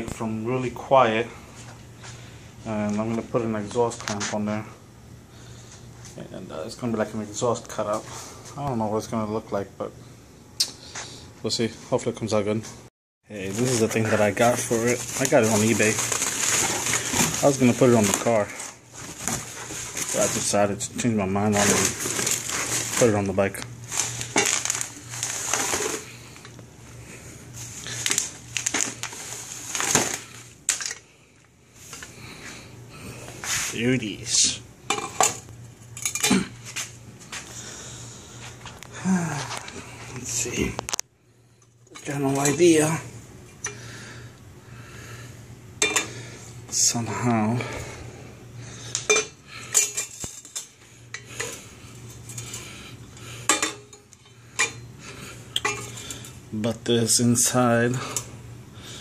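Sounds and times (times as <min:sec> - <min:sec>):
bubble wrap crinkling: 0:13.4 - 0:20.8, 0:21.4 - 0:26.6, 0:27.5 - 0:30.8
metal pipes clinking together: 0:45.8 - 0:46.2, 0:49.0 - 0:51.6, 0:53.5 - 0:54.8, 0:55.5 - 0:56.1.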